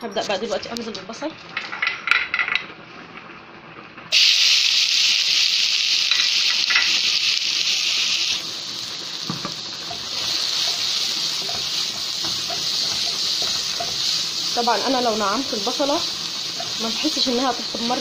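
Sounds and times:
onion sizzling in hot fat: 0:04.1 - 0:18.0.

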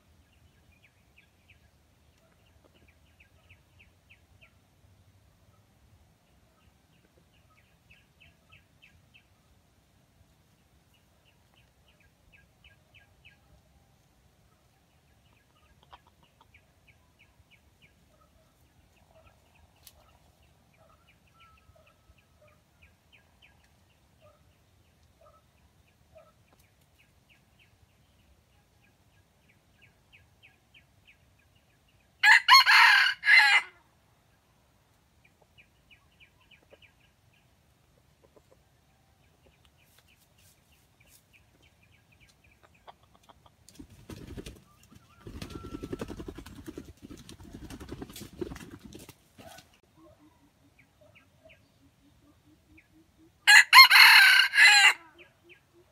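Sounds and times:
rooster crowing: 0:32.2 - 0:33.7, 0:53.5 - 0:55.1.

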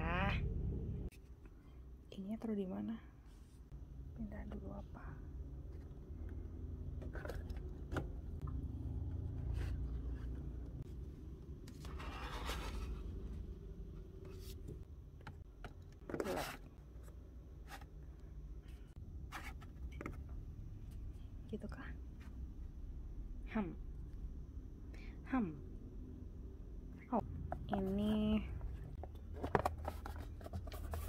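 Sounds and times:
low steady hum: 0:00.0 - 0:31.0
merchandise scraping and rubbing: 0:27.6 - 0:31.0.

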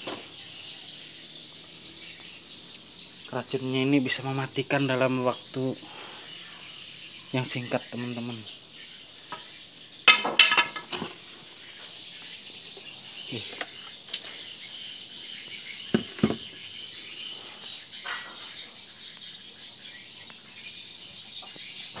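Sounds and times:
insect chirping: 0:00.0 - 0:22.0
dull knocks: 0:15.9 - 0:16.5.

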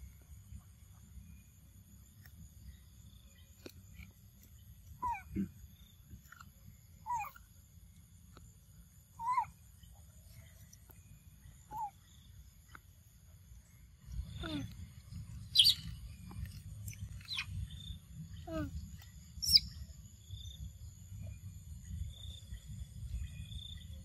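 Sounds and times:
baby monkey squeaky calls: 0:05.0 - 0:05.3, 0:07.0 - 0:07.4, 0:09.2 - 0:09.6, 0:15.5 - 0:16.6, 0:17.2 - 0:17.5, 0:19.4 - 0:19.7.

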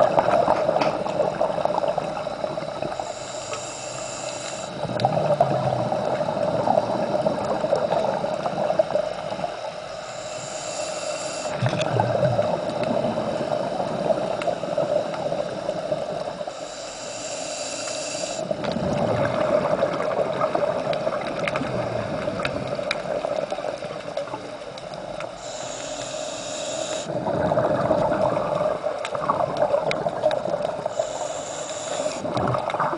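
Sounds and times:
exhaust bubbling underwater: 0:00.0 - 0:03.1, 0:04.6 - 0:09.7, 0:11.5 - 0:16.4, 0:18.4 - 0:25.2, 0:27.0 - 0:31.1, 0:32.0 - 0:32.9
regulator hissing inhale: 0:02.2 - 0:04.9, 0:09.2 - 0:11.6, 0:12.6 - 0:18.7, 0:25.2 - 0:27.3, 0:30.8 - 0:32.4.

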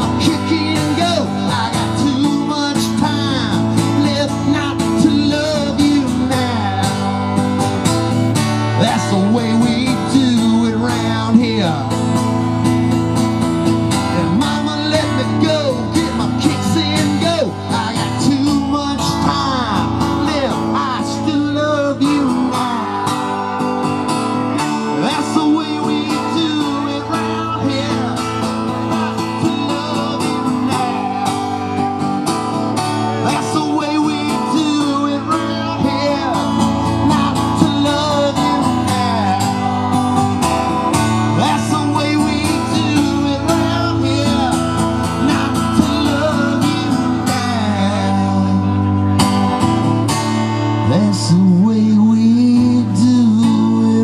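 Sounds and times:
acoustic guitar strummed: 0:00.0 - 0:54.0
person singing: 0:24.8 - 0:49.3.

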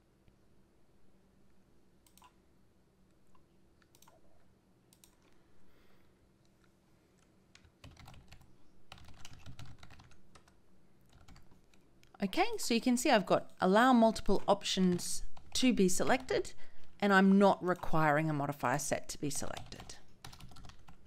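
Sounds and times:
typing on keyboard: 0:03.9 - 0:04.2, 0:07.6 - 0:11.8, 0:19.5 - 0:21.0.

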